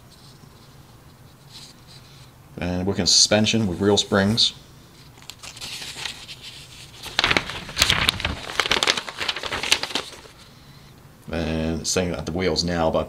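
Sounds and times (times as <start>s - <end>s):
paper pages rustling: 5.0s - 10.5s.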